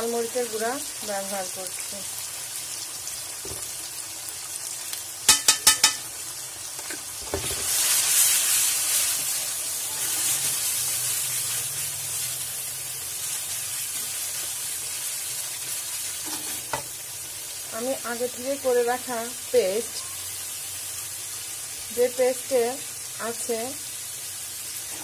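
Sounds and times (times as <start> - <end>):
onions sizzling in hot oil: 0.0 - 25.0
stirring in pan: 6.8 - 17.0.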